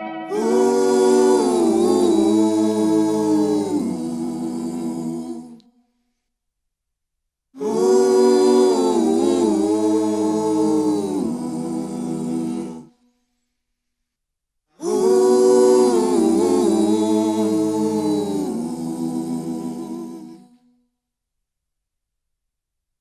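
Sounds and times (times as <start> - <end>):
voices humming in harmony: 0.0 - 5.6, 7.6 - 12.9, 14.8 - 20.4.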